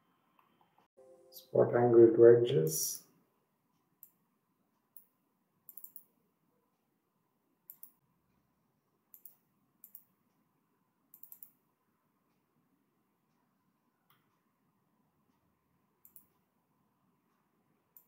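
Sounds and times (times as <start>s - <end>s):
computer mouse clicks: 5.7s - 6.1s, 7.7s - 8.0s, 9.1s - 10.1s, 11.1s - 11.6s, 16.0s - 16.3s.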